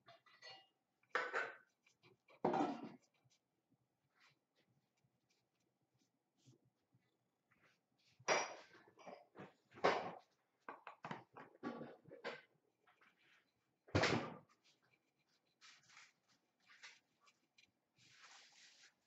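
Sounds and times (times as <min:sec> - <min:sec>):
tissue rubbing porcelain bowl: 0:14.6 - 0:19.0.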